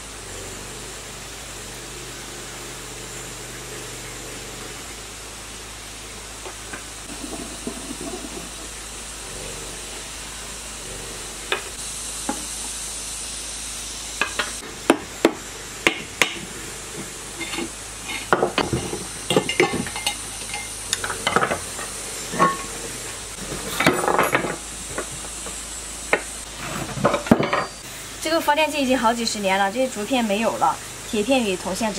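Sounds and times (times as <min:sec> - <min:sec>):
steady hiss: 0:00.0 - 0:31.9
metal clattering and scraping: 0:16.9 - 0:25.3.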